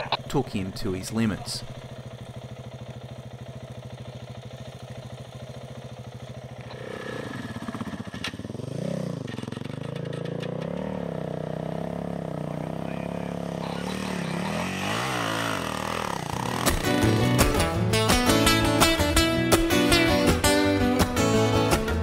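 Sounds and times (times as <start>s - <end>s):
motorcycle engine revving: 0.0s - 22.0s.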